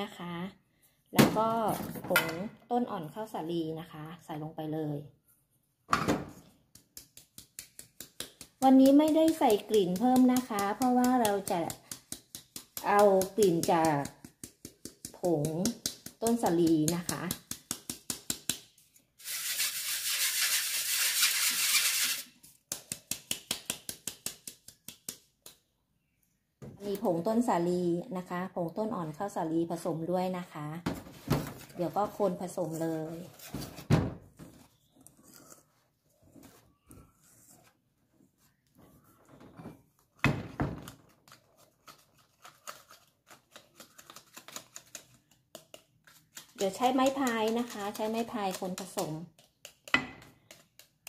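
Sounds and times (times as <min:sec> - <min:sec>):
whisk scraping steel bowl: 0:19.2 - 0:22.3, 0:45.0 - 0:49.5.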